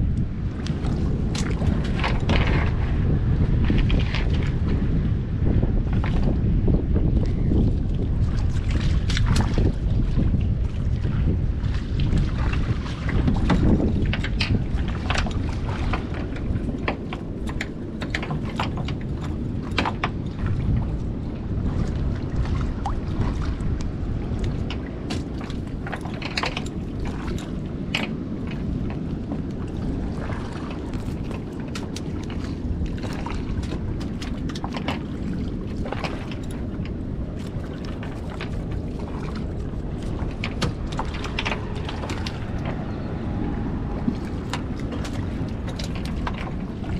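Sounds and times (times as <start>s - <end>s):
wind rumbling on microphone: 0.0s - 46.9s
cast net clicks and rustles: 24.5s - 29.0s, 35.8s - 42.9s.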